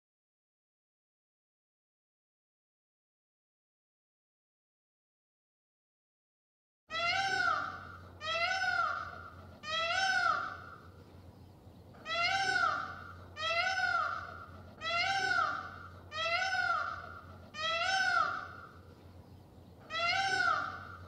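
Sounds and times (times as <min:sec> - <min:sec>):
peacock wailing call: 0:06.9 - 0:10.8, 0:12.0 - 0:18.8, 0:19.8 - 0:21.0.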